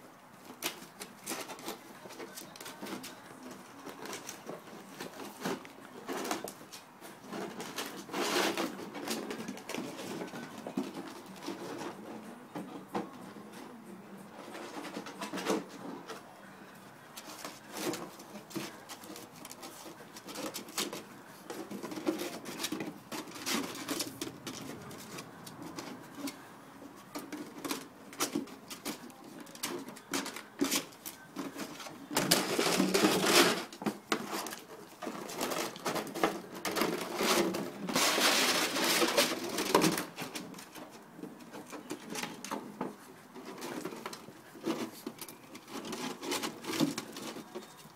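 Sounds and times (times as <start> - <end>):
rustling: 0.0 - 47.9
plastic bottle knocking and scraping: 17.2 - 26.4, 27.0 - 47.9.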